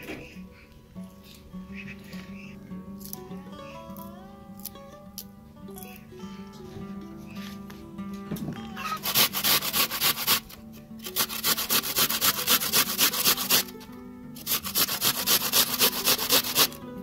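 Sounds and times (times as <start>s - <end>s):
faint background music: 0.0s - 17.0s
onion scraping on metal grater: 8.8s - 13.8s, 14.4s - 16.8s.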